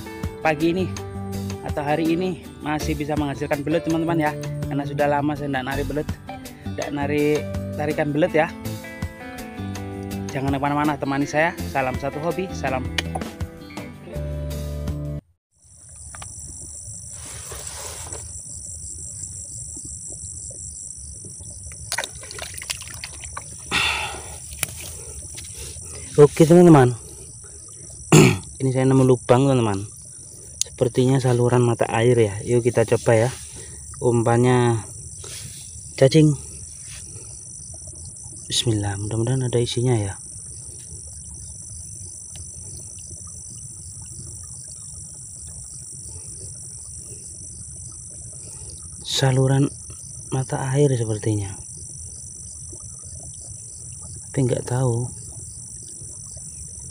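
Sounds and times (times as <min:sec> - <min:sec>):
insects chorus: 0:00.0 - 0:12.8, 0:15.6 - 0:56.9
faint small ticks: 0:15.7 - 0:26.2, 0:27.0 - 0:28.8, 0:29.6 - 0:31.5, 0:33.0 - 0:38.8, 0:39.5 - 0:50.6, 0:51.5 - 0:56.9.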